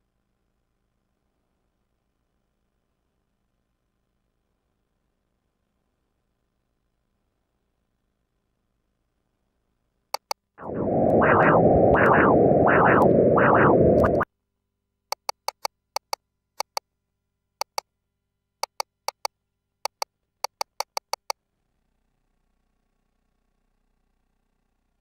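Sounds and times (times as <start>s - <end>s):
doppler ultrasound pulse: 10.2s - 14.2s.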